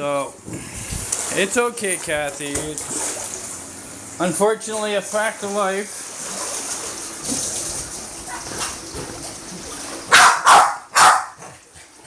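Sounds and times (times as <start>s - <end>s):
faint pool water: 0.0s - 12.0s
dog barking: 10.1s - 11.5s.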